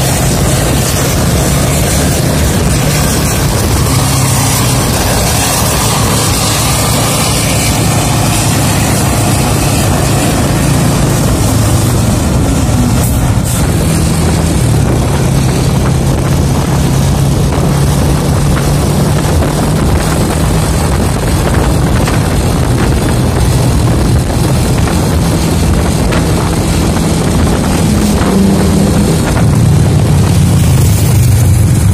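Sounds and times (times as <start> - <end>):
low engine hum: 0.0 - 31.9
vehicle engine and road noise: 0.0 - 31.9.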